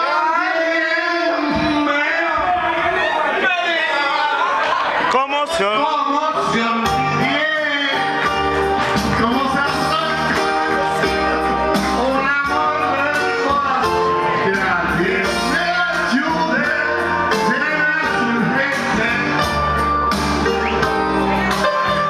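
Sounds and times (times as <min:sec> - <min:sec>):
backing music: 0:04.7 - 0:22.0
men singing into microphone: 0:12.0 - 0:19.7.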